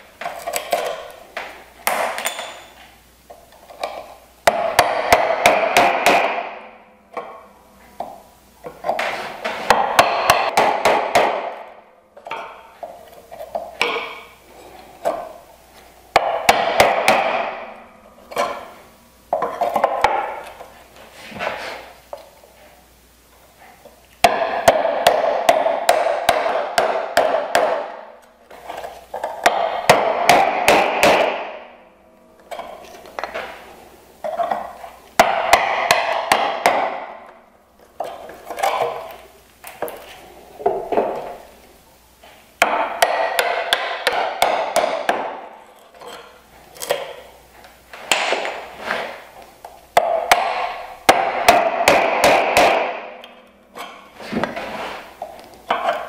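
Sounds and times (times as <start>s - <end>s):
mallet striking chisel into wood: 3.8s - 7.4s, 9.7s - 11.7s, 16.2s - 18.7s, 24.2s - 28.0s, 29.2s - 31.7s, 35.2s - 37.3s, 42.6s - 45.5s, 50.0s - 54.0s.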